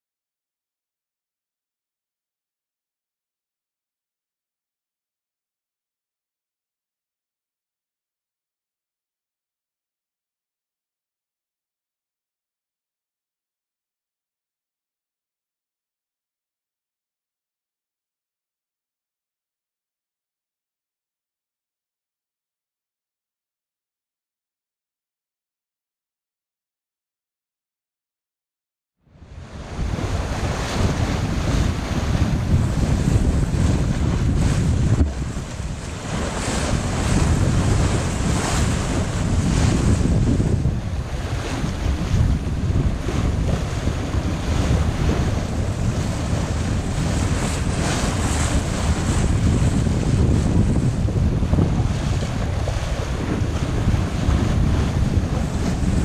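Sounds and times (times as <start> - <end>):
sea rushing past hull: 29.0 - 56.0
wind buffeting microphone: 29.1 - 56.0.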